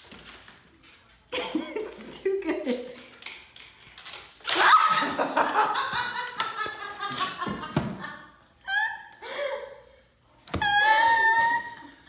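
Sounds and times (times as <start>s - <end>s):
hearty laughter: 4.9s - 9.8s.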